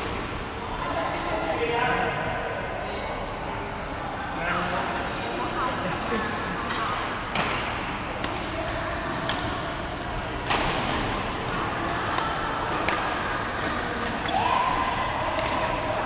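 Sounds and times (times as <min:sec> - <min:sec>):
rackets hitting shuttlecock: 0:06.9 - 0:09.6, 0:10.4 - 0:15.9.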